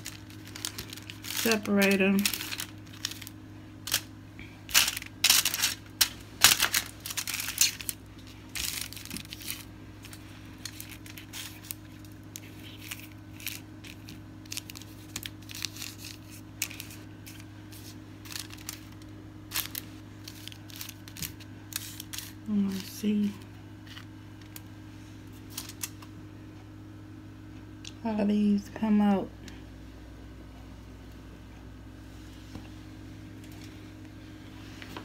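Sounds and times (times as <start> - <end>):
aluminium foil crinkling: 0.0 - 24.7, 25.3 - 26.1
steady low hum: 0.0 - 35.0.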